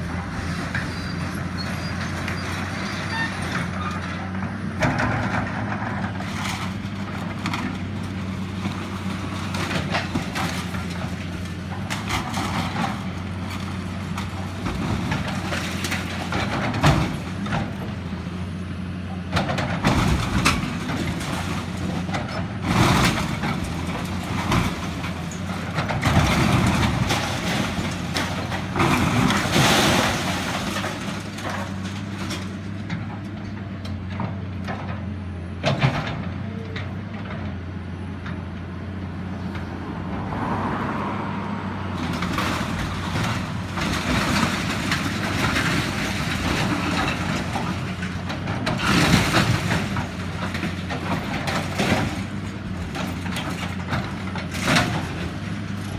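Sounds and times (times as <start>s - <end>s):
heavy demolition machinery running: 0.0s - 55.9s
building debris crashing and falling: 4.8s - 18.0s, 19.4s - 33.2s, 42.0s - 55.9s.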